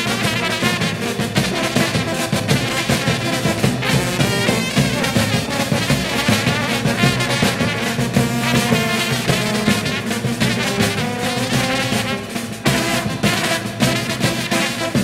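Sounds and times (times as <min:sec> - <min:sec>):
bass drum and cymbal beat: 0:00.0 - 0:15.0
brass band playing: 0:00.0 - 0:15.0
trumpets and baritone horns: 0:00.0 - 0:15.0.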